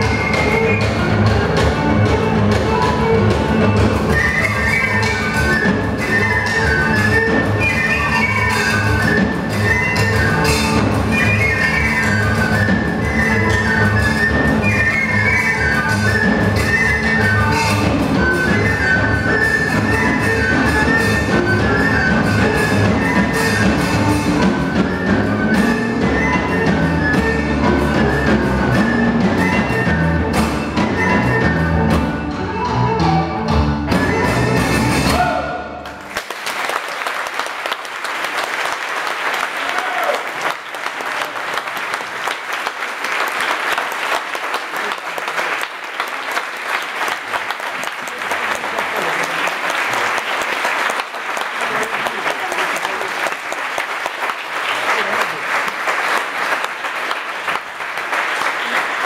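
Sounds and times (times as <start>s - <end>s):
violin: 0.0s - 35.5s
flute: 0.0s - 35.8s
audience applause: 35.8s - 59.0s.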